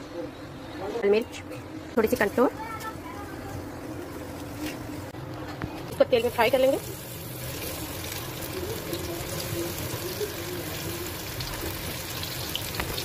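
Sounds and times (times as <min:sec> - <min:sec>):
food deep-frying in oil: 0:05.9 - 0:13.0.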